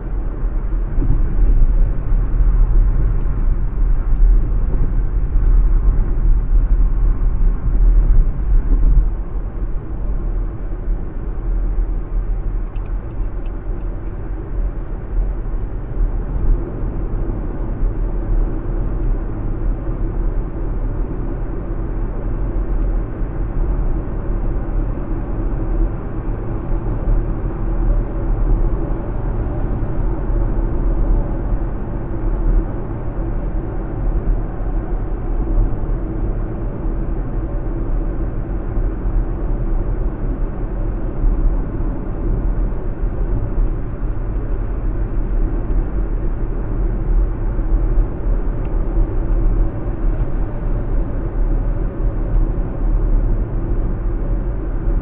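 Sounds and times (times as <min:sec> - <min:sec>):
car tyre and engine rumble: 0:00.0 - 0:55.0.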